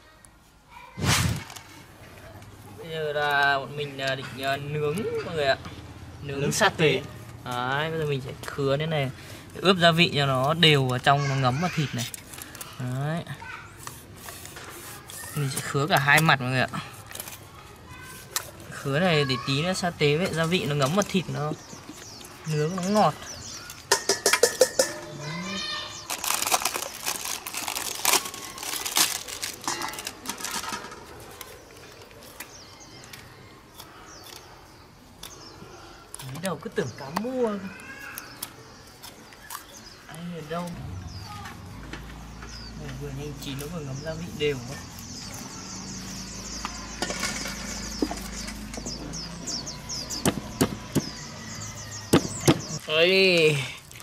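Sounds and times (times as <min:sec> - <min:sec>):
leaf crinkling: 0:00.8 - 0:02.0, 0:09.7 - 0:35.4.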